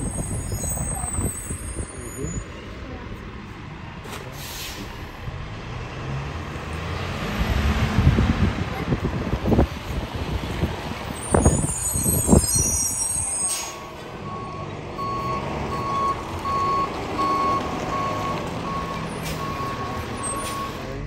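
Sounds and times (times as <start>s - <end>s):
reversing alarm beeping: 11.8s - 21.0s.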